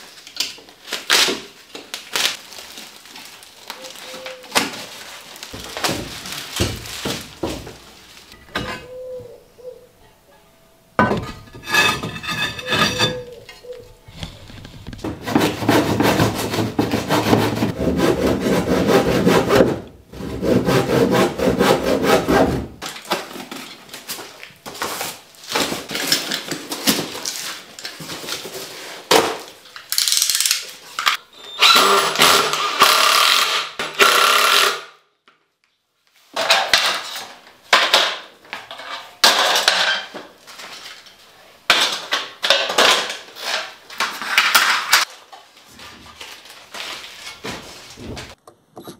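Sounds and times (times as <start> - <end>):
packaging rustling: 0.1 - 8.4
handsaw cutting wood: 15.2 - 22.7
metal pieces knocking and clattering: 38.7 - 40.1.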